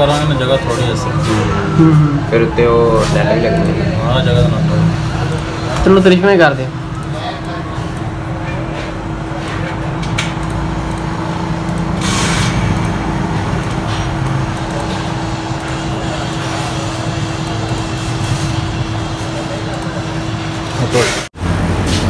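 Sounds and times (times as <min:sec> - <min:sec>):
steady mechanical hum: 0:00.0 - 0:22.0
low rumble: 0:01.1 - 0:06.1.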